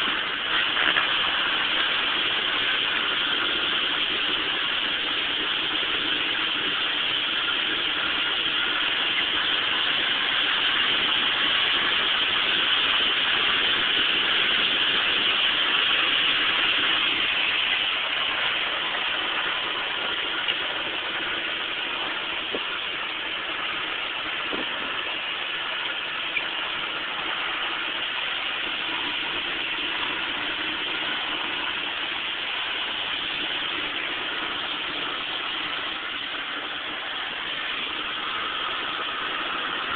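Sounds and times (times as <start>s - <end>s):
truck engine running: 0.0s - 39.9s.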